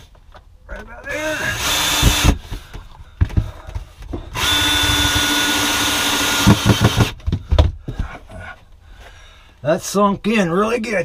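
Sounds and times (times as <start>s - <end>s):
cordless drill driving screw: 1.2s - 2.4s, 4.3s - 7.1s
knocks: 6.4s - 8.2s.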